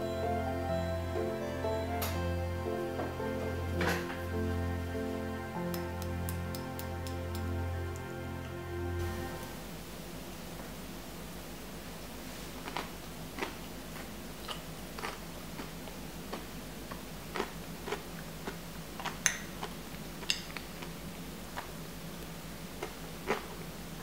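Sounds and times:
spoon cracking sugar crust: 0:05.7 - 0:08.1.

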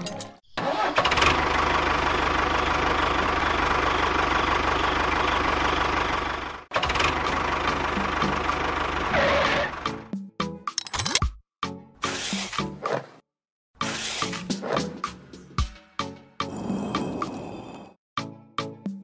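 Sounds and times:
tractor engine chugging: 0:00.6 - 0:09.8.

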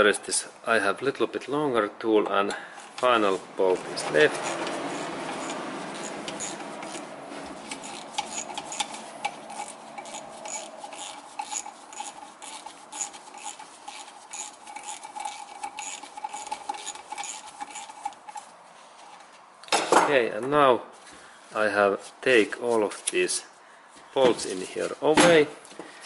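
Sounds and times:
ratchet wrench clicking: 0:02.8 - 0:18.5.

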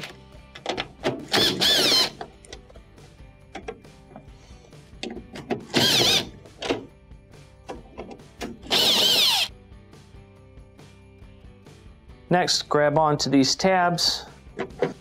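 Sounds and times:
drill motor whine: 0:01.4 - 0:02.1, 0:05.8 - 0:06.3, 0:08.7 - 0:09.5
driver and screw clicks: 0:05.0 - 0:06.8, 0:08.4 - 0:09.5.

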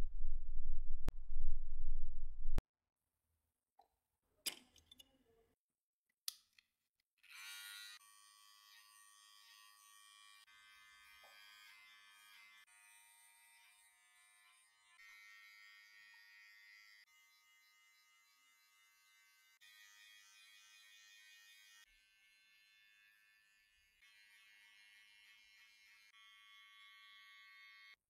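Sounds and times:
electric hair clippers buzzing: 0:24.0 - 0:27.9.

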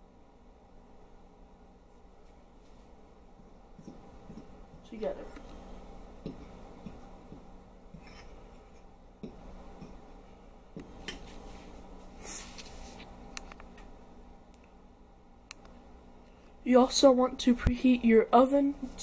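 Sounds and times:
spoon scraping in a bowl: 0:07.9 - 0:08.9.

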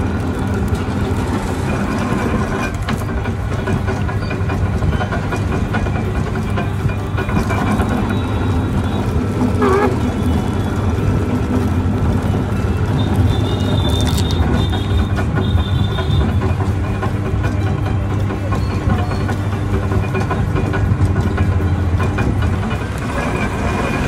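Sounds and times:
sugarcane crusher humming and grinding: 0:00.0 - 0:24.0.

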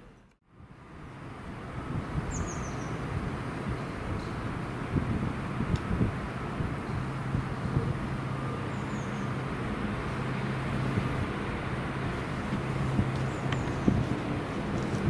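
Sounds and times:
locomotive humming: 0:03.4 - 0:15.0.

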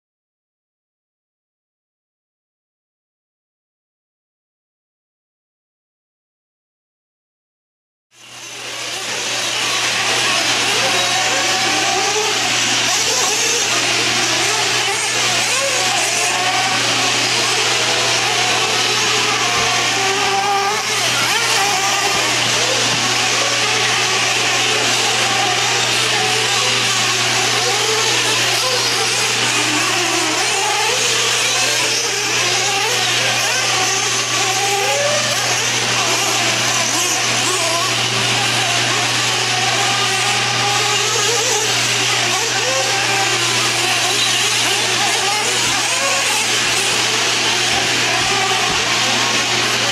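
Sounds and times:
rc car engines buzzing: 0:08.1 - 0:49.9.

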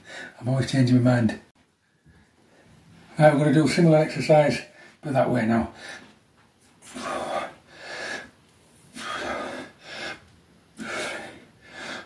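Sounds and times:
man breathing hard: 0:05.7 - 0:06.1, 0:06.8 - 0:12.0.

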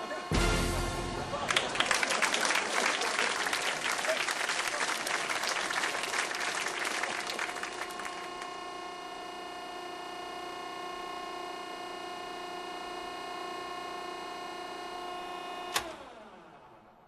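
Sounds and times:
stair-lift motor whining: 0:05.3 - 0:17.0.

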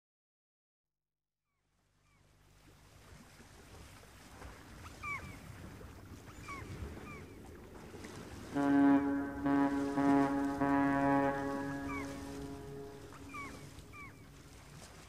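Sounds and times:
wind: 0:01.5 - 0:15.0
choppy sea waves: 0:02.1 - 0:15.0
bird chirping calls: 0:06.3 - 0:07.4, 0:08.8 - 0:14.8
loud horn-like tone: 0:08.5 - 0:14.3.

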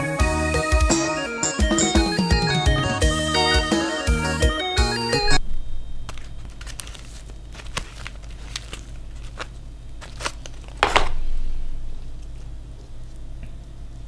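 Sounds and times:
steady low hum: 0:05.3 - 0:14.0
rice and basket rustling: 0:06.3 - 0:11.1.

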